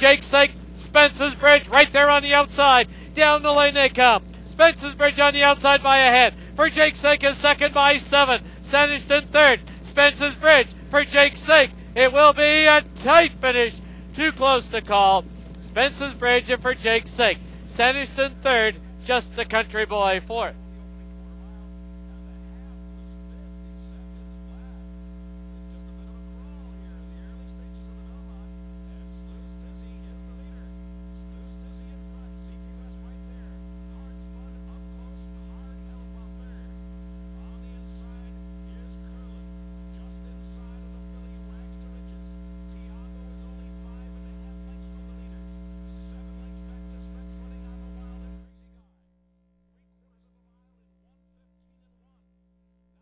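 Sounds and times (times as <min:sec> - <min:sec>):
electrical mains hum: 0:00.0 - 0:53.0.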